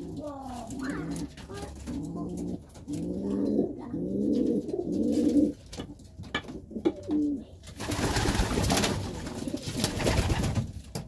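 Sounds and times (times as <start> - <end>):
pigeon cooing: 0.0 - 5.6.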